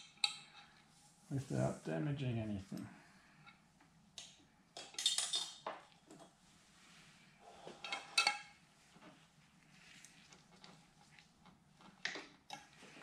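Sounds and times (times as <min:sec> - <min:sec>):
metal tools clattering: 0:04.8 - 0:05.7, 0:07.8 - 0:08.5.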